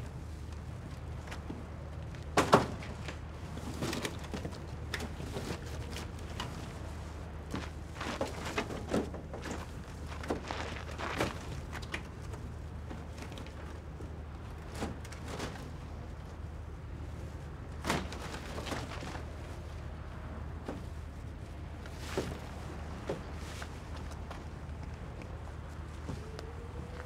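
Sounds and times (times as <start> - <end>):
knocks and rustles: 7.5 - 13.8.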